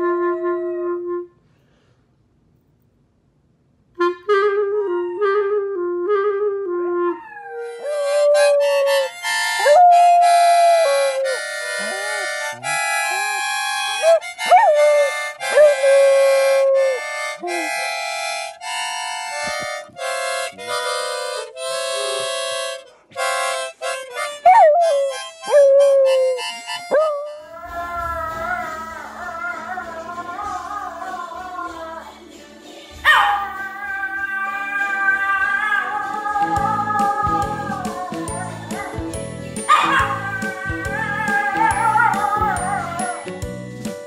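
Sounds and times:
harmonica chords: 4.0 - 7.2, 7.8 - 31.2, 36.2 - 44.0
dog howling: 4.7 - 5.9, 7.0 - 12.4, 26.9 - 30.0, 33.0 - 39.0, 39.7 - 43.2.

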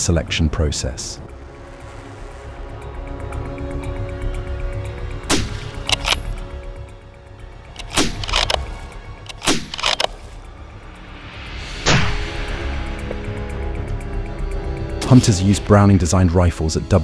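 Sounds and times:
background music: 0.0 - 17.0
rifle shots: 7.8 - 8.7, 9.3 - 10.2.

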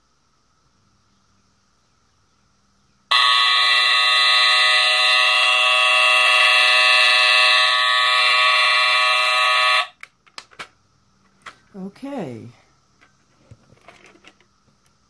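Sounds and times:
smoke alarm shrill tone: 3.1 - 10.0.

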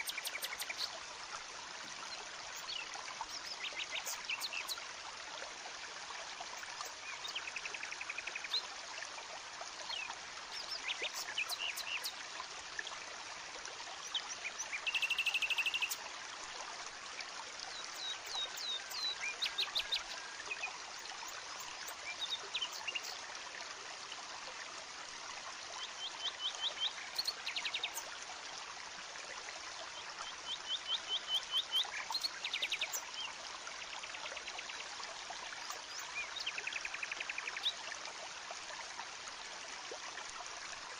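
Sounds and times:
birds chirping: 0.0 - 0.9.

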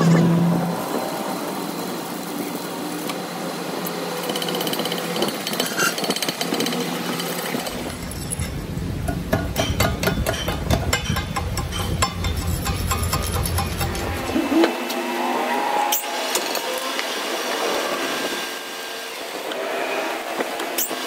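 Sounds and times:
welding arc crackling hiss: 0.4 - 15.0
hammer strikes on metal: 9.0 - 14.2.

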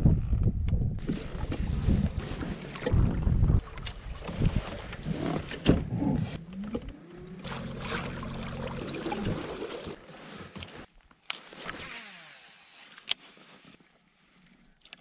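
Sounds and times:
water splashing at kayak hull: 1.0 - 6.4, 7.2 - 10.0
low hum rising in pitch: 5.8 - 9.4.

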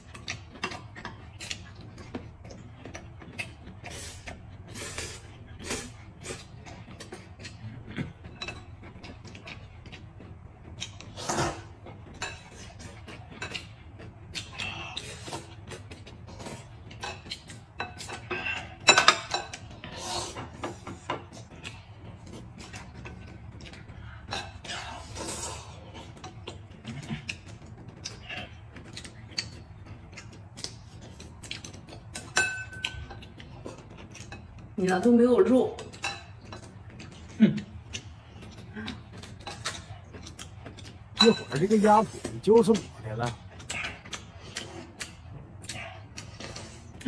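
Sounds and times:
slurping noodle soup: 10.9 - 11.8.

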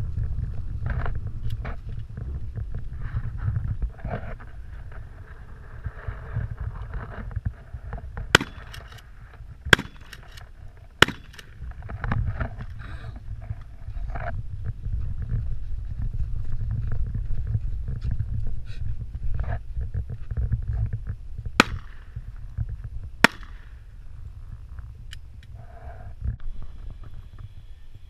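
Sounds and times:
wind rumble on microphone: 0.0 - 28.0
shotgun shots: 8.3 - 8.9, 9.7 - 10.4, 11.0 - 11.5, 21.6 - 22.1, 23.2 - 23.7.

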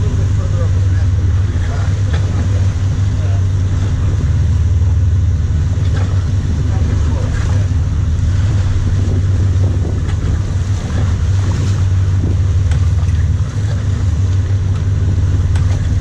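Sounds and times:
boat engines droning: 0.0 - 16.0
water rushing along hull: 0.0 - 16.0
wind buffeting microphone: 0.0 - 16.0.

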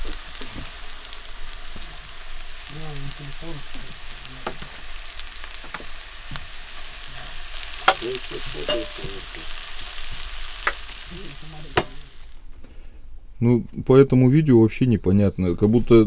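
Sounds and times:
carrots sizzling in frying pan: 0.0 - 12.5.

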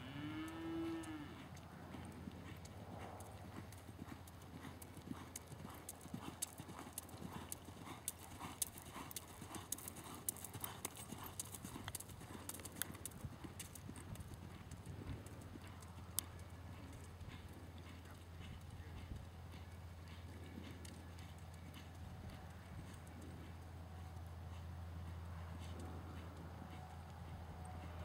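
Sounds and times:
hooves on sand: 15.1 - 28.0.

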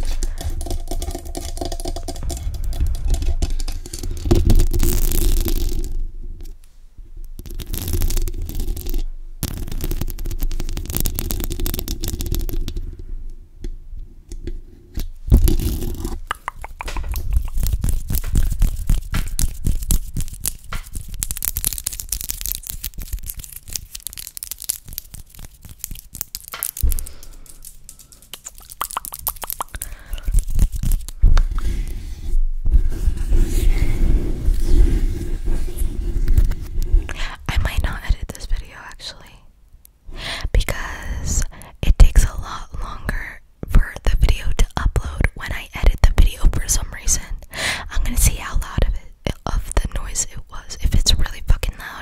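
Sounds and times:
muffled rubbing on microphone: 15.3 - 21.3, 28.5 - 38.6
nails tapping on microphone: 15.3 - 31.5.

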